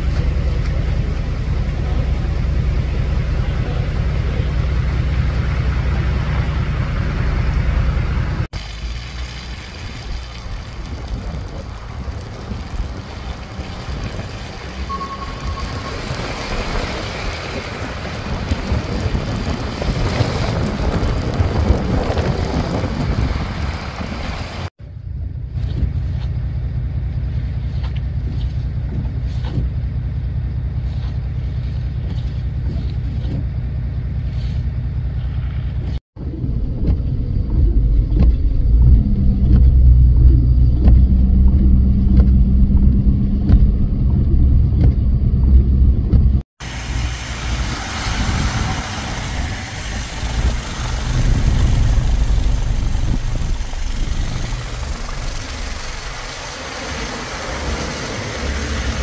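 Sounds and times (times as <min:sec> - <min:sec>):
traffic rumble: 0:00.0 - 0:59.0
high tone: 0:14.8 - 0:17.0.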